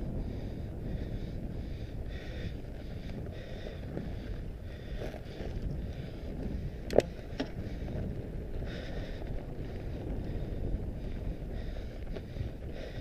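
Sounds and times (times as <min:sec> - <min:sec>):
bike knocking and rattling: 0:00.0 - 0:13.0
wind buffeting microphone: 0:00.0 - 0:13.0
tyres rumbling on gravel: 0:02.9 - 0:13.0.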